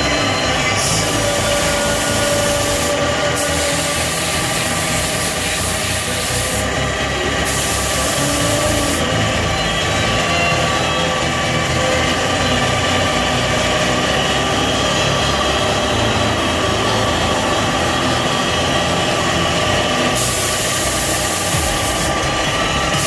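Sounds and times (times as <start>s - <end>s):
air compressor running: 0.0s - 23.0s
spray gun air hiss: 1.1s - 6.7s, 7.4s - 9.0s, 20.2s - 22.2s.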